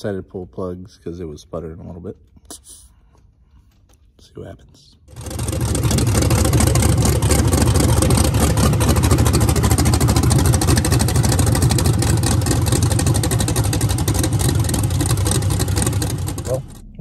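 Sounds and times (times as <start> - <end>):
engine idling: 5.1 - 17.0.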